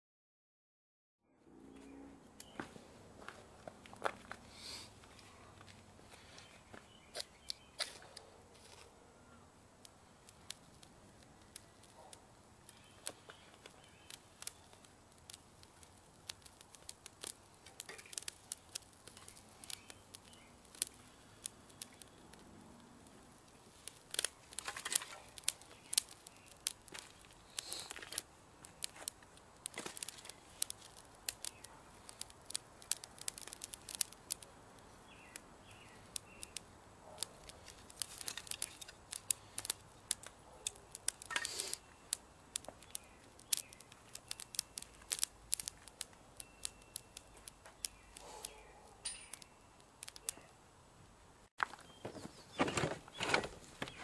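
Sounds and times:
fire crackling and popping: 3.2s - 8.8s, 9.4s - 54.0s
kindling rustling: 23.9s - 28.2s.

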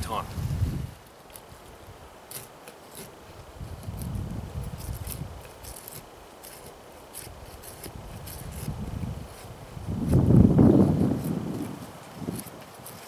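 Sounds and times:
knife scraping wooden stick: 2.2s - 13.0s.

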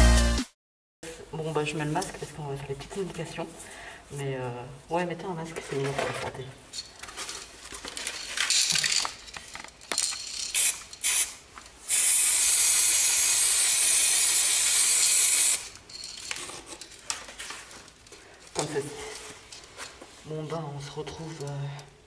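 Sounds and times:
spray paint can hissing: 10.3s - 15.8s.

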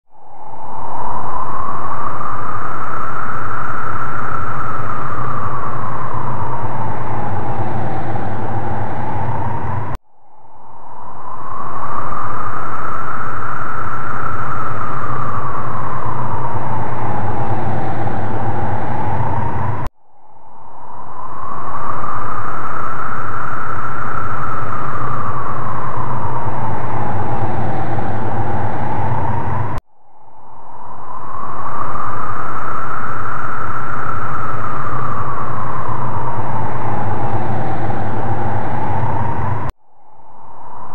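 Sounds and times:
howling wind with whistling tone: 0.0s - 40.9s
low rumble: 3.2s - 12.8s, 13.8s - 40.9s
loud rushing noise: 4.8s - 10.0s, 14.8s - 19.9s, 24.7s - 29.8s, 34.8s - 39.7s.

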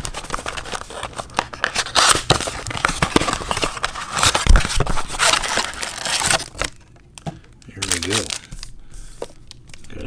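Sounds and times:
cardboard box tearing: 1.7s - 6.6s.

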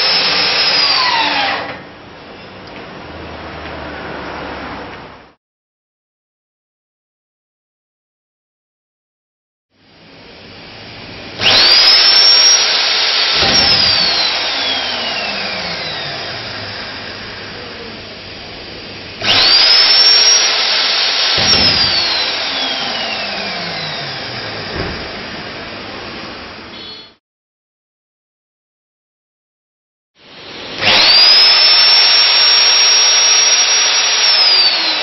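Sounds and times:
magnetic drill motor whining: 0.0s - 1.8s, 11.4s - 17.6s, 19.2s - 25.3s, 30.6s - 35.0s.

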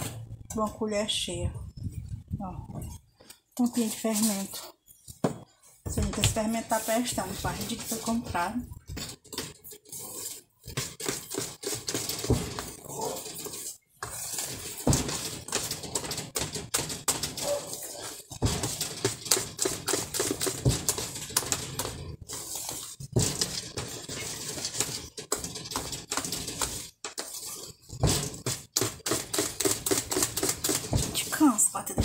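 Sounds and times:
whisk clicking against bowl: 9.3s - 32.0s.

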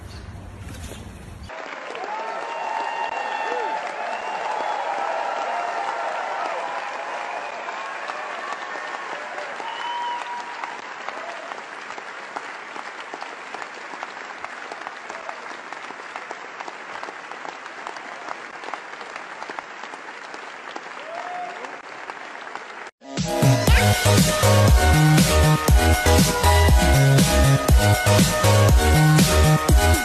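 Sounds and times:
audience applauding: 1.5s - 23.0s.

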